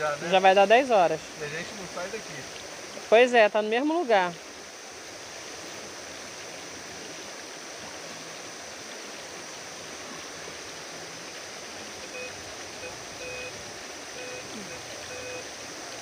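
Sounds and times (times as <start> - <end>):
waterfall and stream rushing: 0.0 - 16.0
metal detector short beeps: 14.2 - 15.4.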